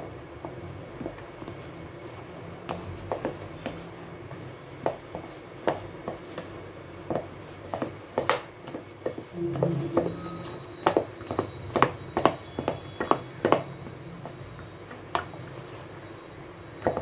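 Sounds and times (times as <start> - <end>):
low steady hum: 9.3 - 12.3.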